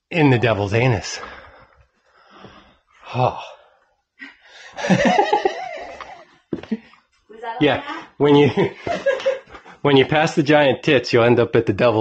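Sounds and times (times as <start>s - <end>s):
people laughing: 4.7s - 6.8s, 8.2s - 11.1s.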